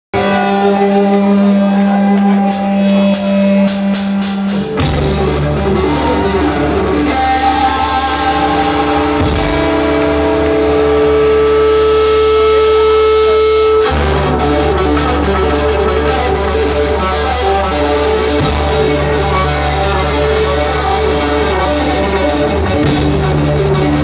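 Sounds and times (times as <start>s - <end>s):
loud rock band playing: 0.1s - 24.0s.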